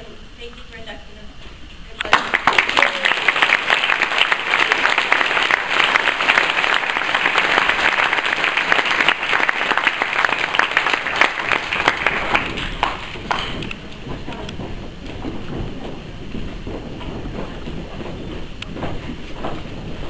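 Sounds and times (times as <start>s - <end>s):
audience applauding: 2.0s - 14.6s.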